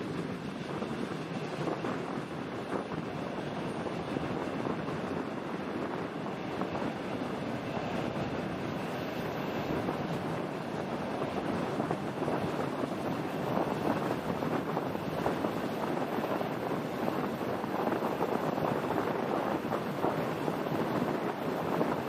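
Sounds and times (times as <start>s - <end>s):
train wheels rolling on rails: 0.0s - 22.0s
wind buffeting microphone: 0.0s - 22.0s.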